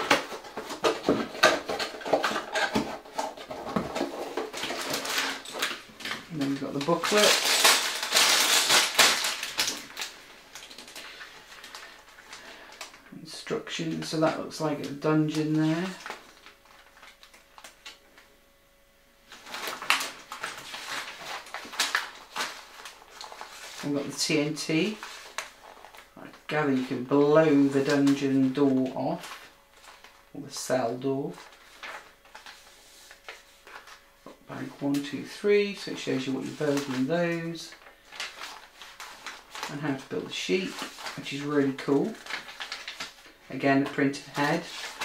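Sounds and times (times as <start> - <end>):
cardboard box and paper rustling: 0.0 - 12.3, 19.3 - 24.1, 36.2 - 45.0.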